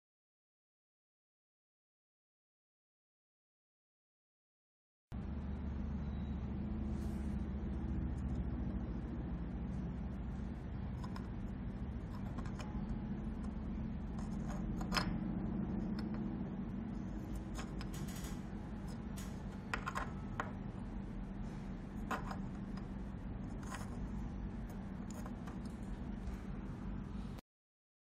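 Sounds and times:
steady low hum: 5.1s - 27.4s
small plastic clicks and scrapes: 10.9s - 11.4s, 12.0s - 15.2s, 17.3s - 20.6s, 23.5s - 24.0s, 24.7s - 26.4s.

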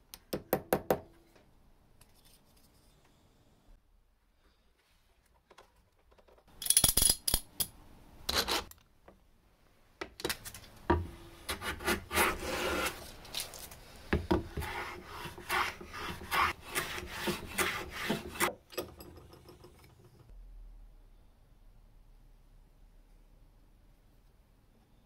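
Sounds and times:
wooden scrapes: 11.8s - 13.7s
hand plane rasping on wood: 14.5s - 18.5s.

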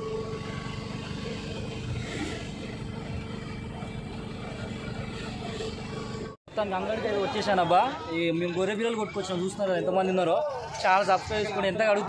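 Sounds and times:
road noise: 0.0s - 12.0s
vehicle engine humming: 0.0s - 12.0s.

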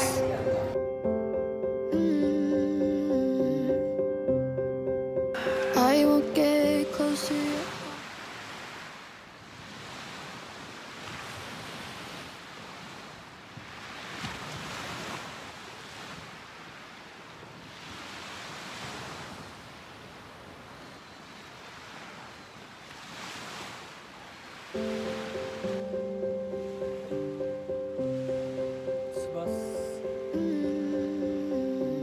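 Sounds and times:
small waves washing onto beach: 5.4s - 30.4s.

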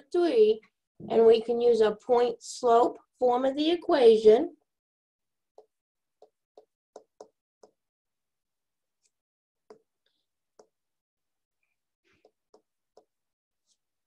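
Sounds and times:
stylus tapping on touchscreen: 5.6s - 7.8s, 9.7s - 10.0s, 10.6s - 10.8s, 12.2s - 13.2s.

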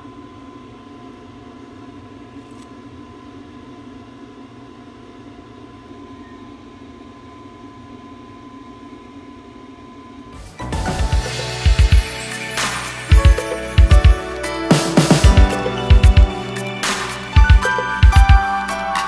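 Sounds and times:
mechanical hum: 0.0s - 14.7s
thin high whine: 9.9s - 19.0s
music: 10.4s - 19.0s.

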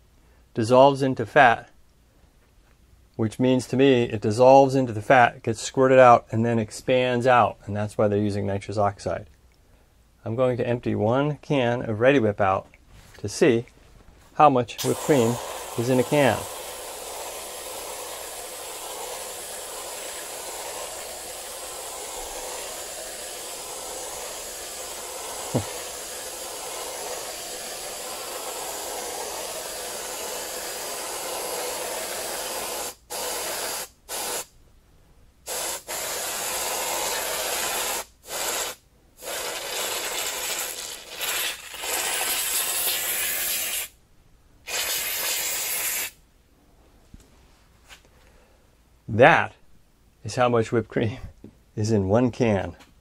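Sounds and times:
aerosol can spraying cream: 14.8s - 34.5s, 35.5s - 44.0s, 44.7s - 46.2s.

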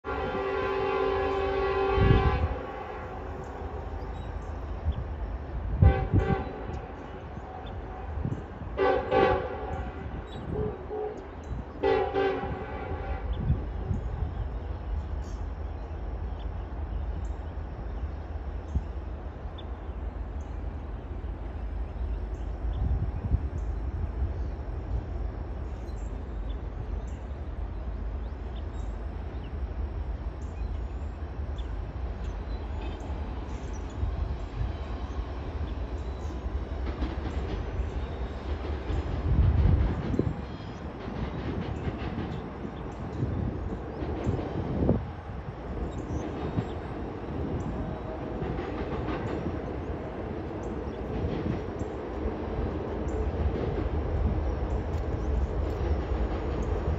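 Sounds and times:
distant locomotive horn blasts: 0.0s - 4.2s, 5.5s - 14.3s
train rumbling: 0.0s - 56.9s.

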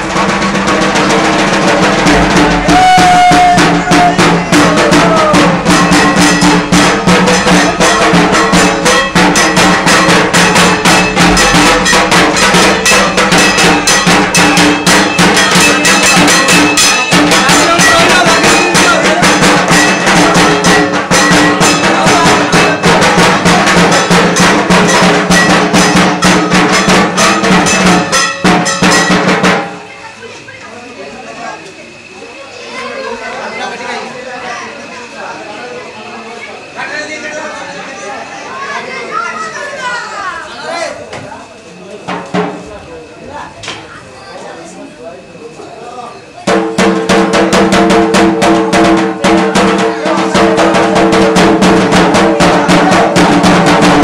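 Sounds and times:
clanging metal percussion: 0.0s - 30.0s, 46.4s - 54.0s
fast loud drumming: 0.0s - 30.0s, 42.0s - 42.9s, 46.4s - 54.0s.

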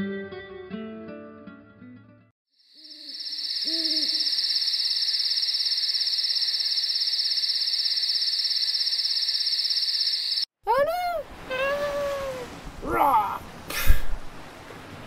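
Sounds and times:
insect trill: 2.6s - 10.5s
low hoots: 3.6s - 4.4s.

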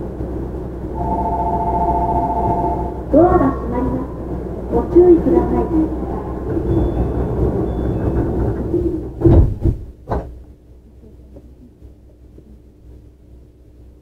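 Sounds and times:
quiet hum inside train: 0.0s - 14.0s
platform noise: 0.8s - 8.3s
train doors thudding shut: 6.5s - 10.4s.

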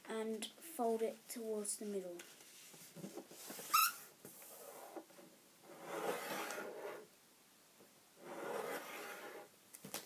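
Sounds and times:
paper rubbing on table: 5.7s - 7.0s, 8.2s - 9.5s.

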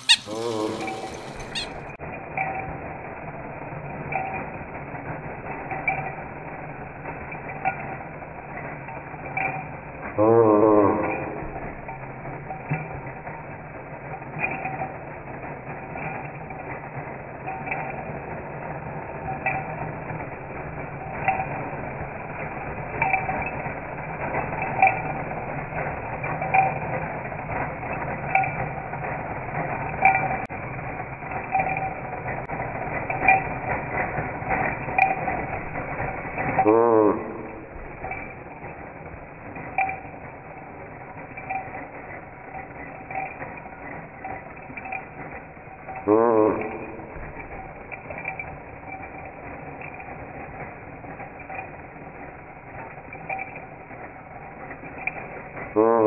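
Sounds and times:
toy horn toot: 0.0s - 1.9s
toy motor whirring: 0.0s - 56.0s.

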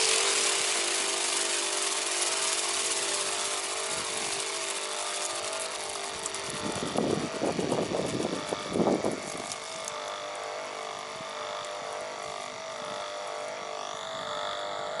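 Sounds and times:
water jet spraying into sink: 0.0s - 6.4s
pressure washer humming: 0.0s - 15.0s.

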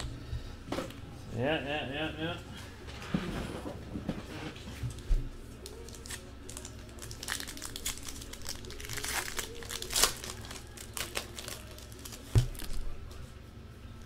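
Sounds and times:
wrapper being torn and crinkled: 5.6s - 12.9s.

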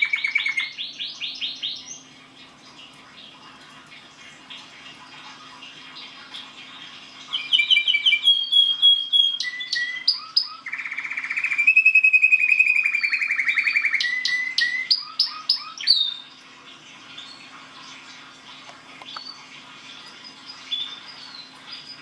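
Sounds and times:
canary singing: 0.0s - 2.1s, 7.3s - 16.3s.

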